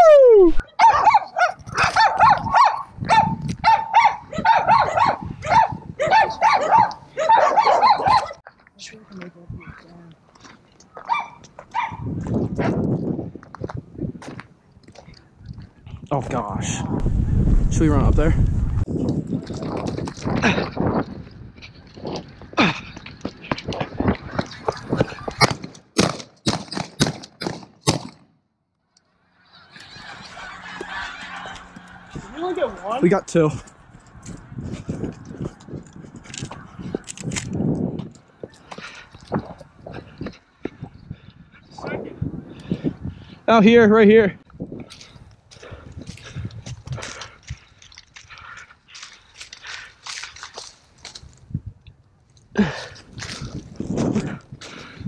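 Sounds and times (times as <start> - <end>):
geese honking: 29.4 - 33.0.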